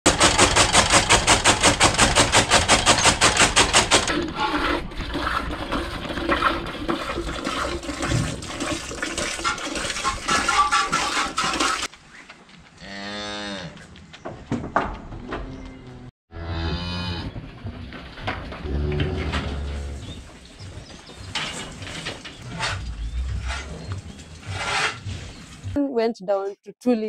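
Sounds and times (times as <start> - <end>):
cow mooing: 15.8 - 17.3, 18.6 - 20.0.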